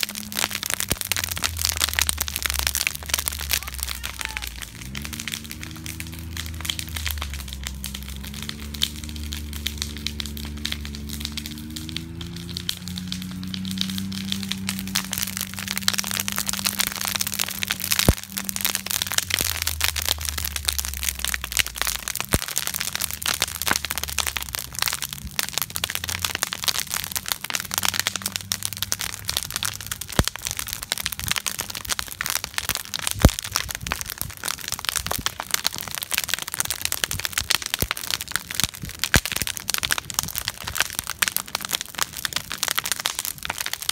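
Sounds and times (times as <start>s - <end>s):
sharp pops of fire: 0.0s - 43.9s
wood fire crackling: 0.0s - 43.9s.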